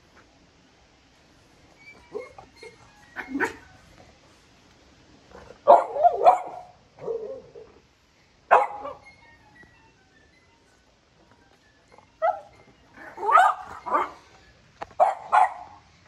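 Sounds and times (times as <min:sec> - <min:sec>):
small dog barking: 0:03.2 - 0:03.7, 0:05.6 - 0:07.4, 0:08.5 - 0:09.0, 0:12.2 - 0:14.2, 0:15.0 - 0:15.8.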